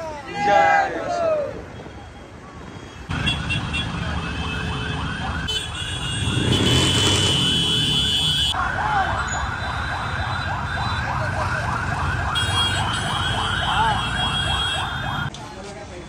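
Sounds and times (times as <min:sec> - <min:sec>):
traffic noise: 0:00.0 - 0:16.0
siren yelping: 0:03.3 - 0:06.5, 0:08.4 - 0:15.3.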